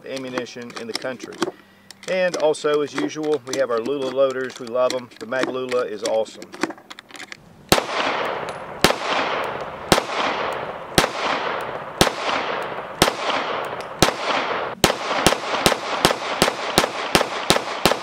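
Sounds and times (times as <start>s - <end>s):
pistol shots with echo: 7.7s - 18.0s.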